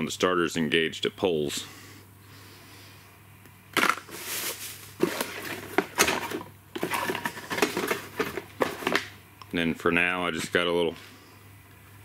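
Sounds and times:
clicking and rustling handling noise: 3.8 - 9.2.

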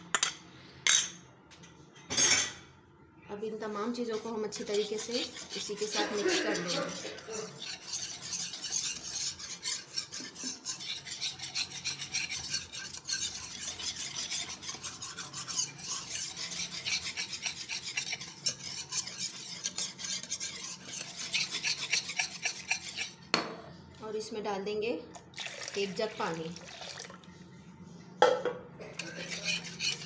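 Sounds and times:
wire whisk scraping a pan: 3.8 - 23.3, 28.8 - 30.0.

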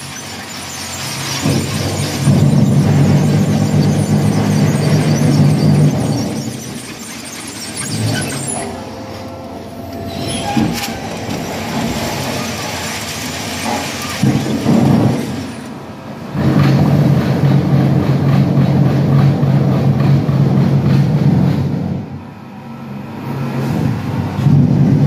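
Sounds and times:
sharp machinery clank: 0.0 - 15.8
machinery motor hum: 0.0 - 17.8.

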